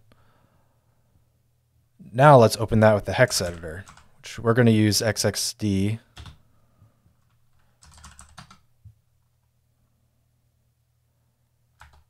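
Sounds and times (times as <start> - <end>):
computer keyboard typing: 3.4 - 4.1, 6.2 - 6.4, 7.2 - 8.7, 11.8 - 12.0.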